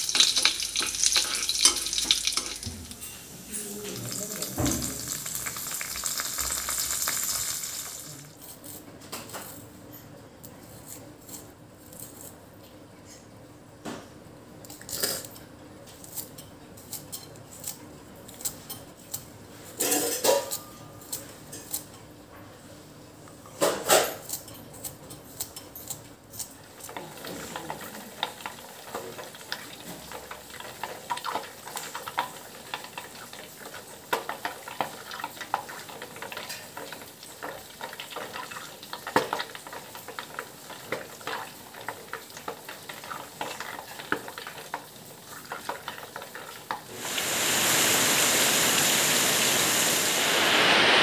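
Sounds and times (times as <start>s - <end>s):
oil sizzling in pan: 0.0s - 8.4s, 26.8s - 51.0s
rain rushing: 46.9s - 51.0s.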